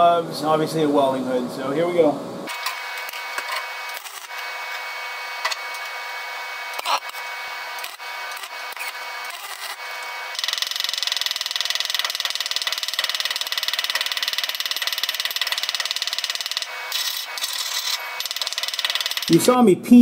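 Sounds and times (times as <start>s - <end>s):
chipping hammer tapping metal: 6.8s - 19.4s.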